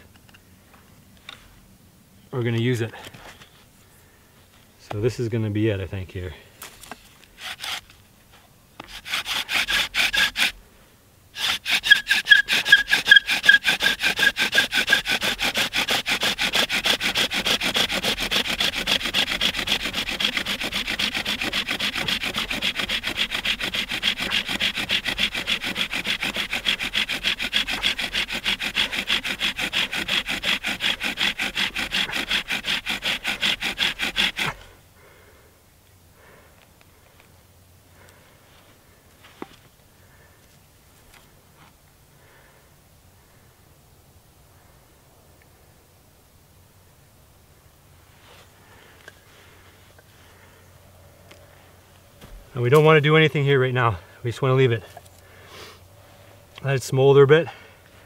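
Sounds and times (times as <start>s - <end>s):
bow drill spindle grinding: 7.4s - 7.9s, 8.8s - 10.6s, 11.4s - 34.7s
bow drill squeaking: 8.8s - 10.6s, 11.4s - 34.6s.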